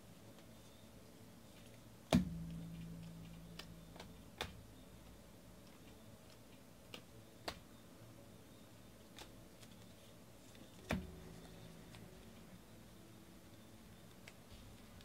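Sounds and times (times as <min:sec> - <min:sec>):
cards clicking and tapping: 0:01.6 - 0:07.8, 0:09.0 - 0:12.1.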